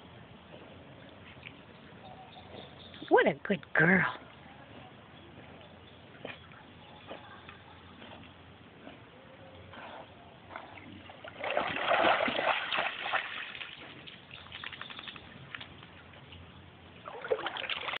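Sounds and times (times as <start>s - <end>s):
dog splashing in water: 11.1s - 15.7s, 17.0s - 18.0s.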